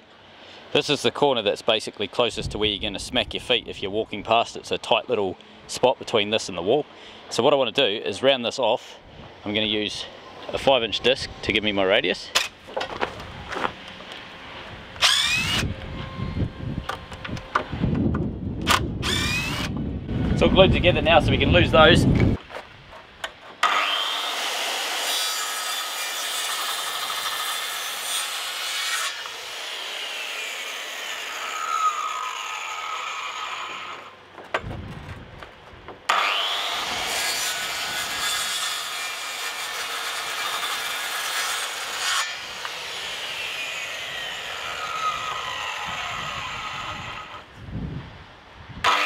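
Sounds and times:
circular saw cutting wood: 15.0s - 16.5s, 19.0s - 19.7s, 23.6s - 34.2s, 36.1s - 47.5s.

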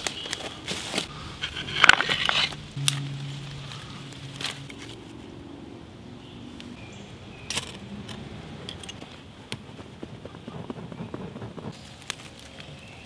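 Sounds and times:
fire-starter rod scrape: 0.7s - 5.1s
tinder crackling and snapping: 10.8s - 13.0s.

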